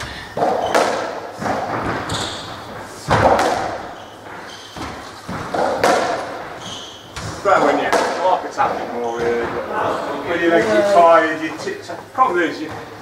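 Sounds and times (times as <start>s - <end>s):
shoes squeaking on wooden floor: 0.4s - 7.5s
ball thuds echoing on court walls: 0.4s - 9.7s.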